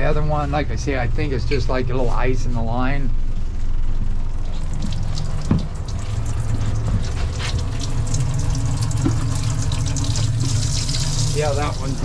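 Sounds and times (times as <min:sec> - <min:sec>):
steady low hum: 0:00.0 - 0:12.0
water spraying into box: 0:04.4 - 0:12.0.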